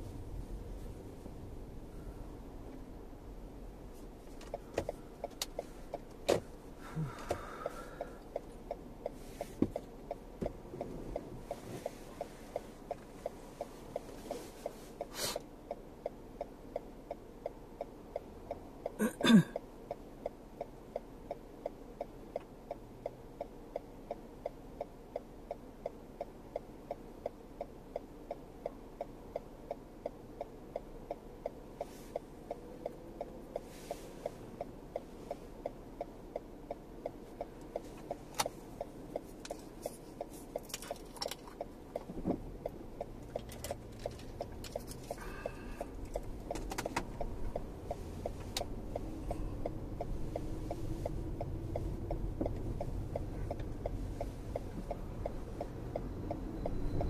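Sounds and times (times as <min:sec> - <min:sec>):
road and tyre noise: 0:00.0 - 0:57.0
turn signal ticking: 0:00.0 - 0:57.0.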